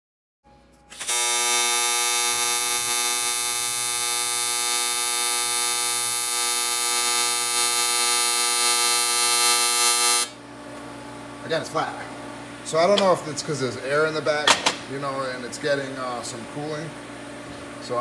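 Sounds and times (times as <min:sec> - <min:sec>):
welding arc buzzing and hissing: 0:00.9 - 0:10.4.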